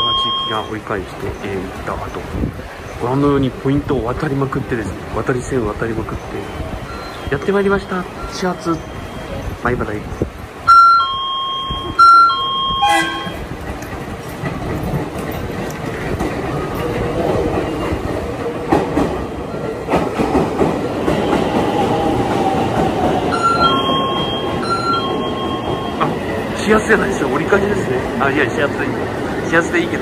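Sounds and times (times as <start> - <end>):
electric train rumble: 0.0 - 30.0
train wheel clatter: 10.4 - 30.0.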